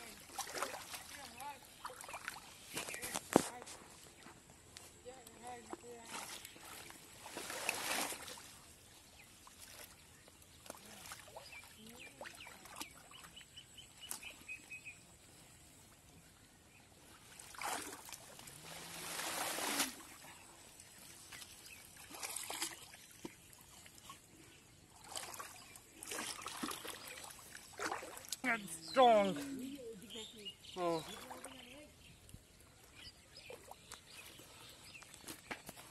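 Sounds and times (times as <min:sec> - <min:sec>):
muddy water sloshing and splashing: 0:00.0 - 0:35.9
bird chirping: 0:28.4 - 0:35.5.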